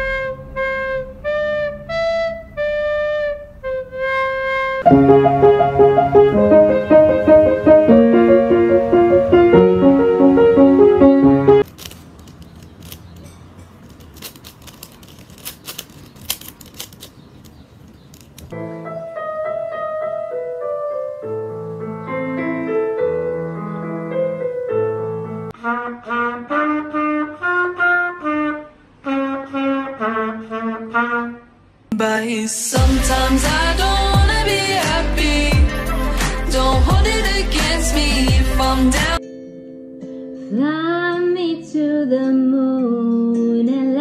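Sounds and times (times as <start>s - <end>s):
trumpet melody: 0.0s - 11.6s, 22.4s - 31.7s
slow piano notes and chords: 4.8s - 11.7s, 18.5s - 25.6s
loud music: 32.8s - 39.2s.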